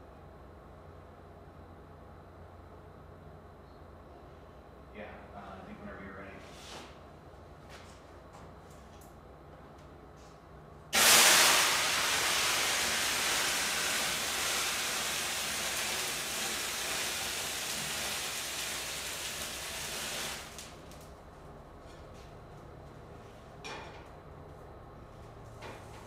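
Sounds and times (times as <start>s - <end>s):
grease fire flaring up: 10.9s - 21.3s
flames hissing: 11.0s - 21.1s.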